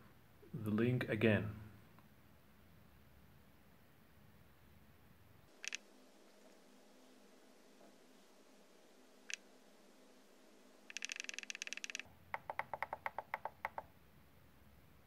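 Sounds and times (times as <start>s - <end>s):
radio transmitter clicks: 5.5s - 5.8s, 10.9s - 12.0s.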